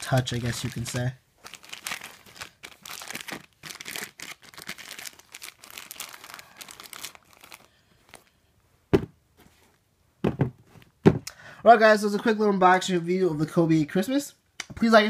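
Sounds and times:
plastic bag crinkling: 0.0 - 8.3
dull thumps: 8.9 - 9.2, 10.2 - 11.3.

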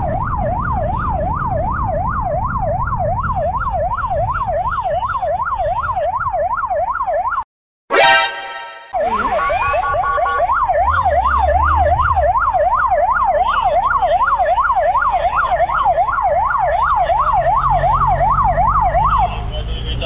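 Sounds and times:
electronic siren yelping: 0.0 - 19.7
horn-like blast: 7.9 - 9.3.

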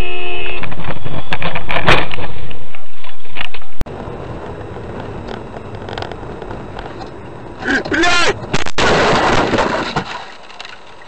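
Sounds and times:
road noise inside car: 3.5 - 8.6.

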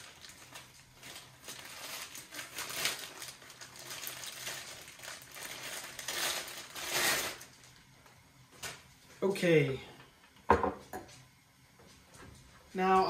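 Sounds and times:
plastic packaging crinkling: 0.0 - 7.9, 8.5 - 8.9.

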